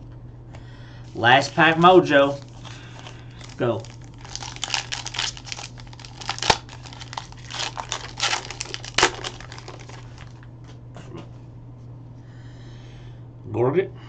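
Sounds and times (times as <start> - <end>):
sharp wrapper crackles: 1.1 - 10.4
wrapper tearing and crumpling: 1.4 - 10.4.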